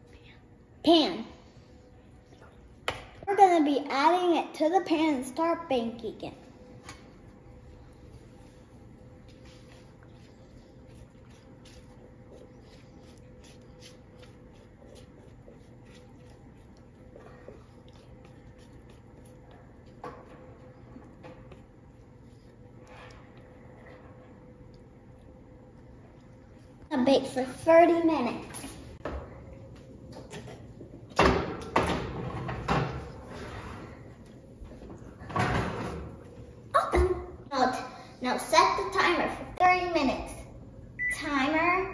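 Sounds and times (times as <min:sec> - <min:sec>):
low steady hum: 0:00.0 - 0:41.9.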